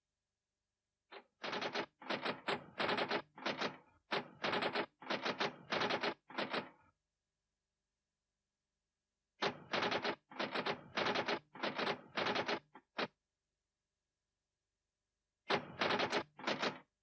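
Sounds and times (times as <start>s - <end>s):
typewriter keys clacking: 15.5s - 16.8s.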